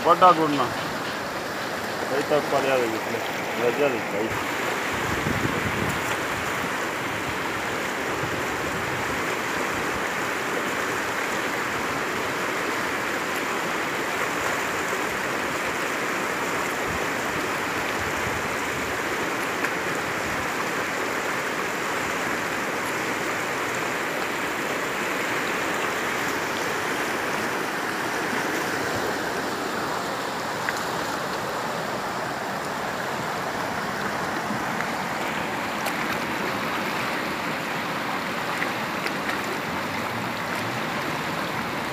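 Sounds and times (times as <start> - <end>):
water rushing over rocks: 0.0 - 41.9.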